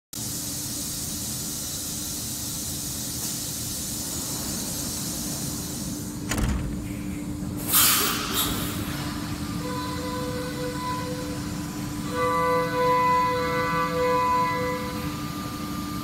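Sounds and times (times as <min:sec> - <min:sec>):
machine humming and hissing: 0:00.2 - 0:16.0
thump: 0:06.3 - 0:06.9.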